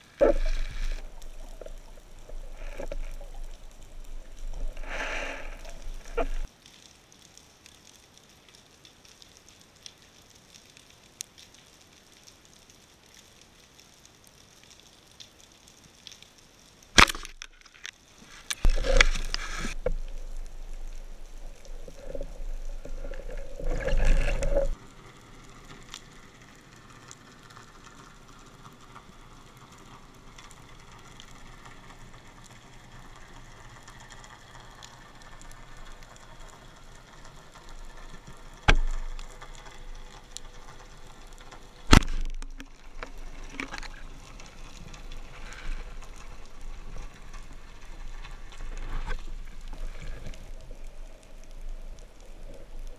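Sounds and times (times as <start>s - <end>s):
bubbling and water rush: 0.0s - 6.5s, 18.6s - 52.9s
faint underwater crackling: 0.0s - 52.9s.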